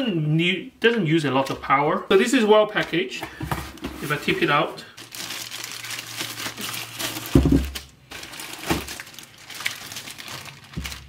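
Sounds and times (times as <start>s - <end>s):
plastic bags crinkling: 4.0s - 11.0s.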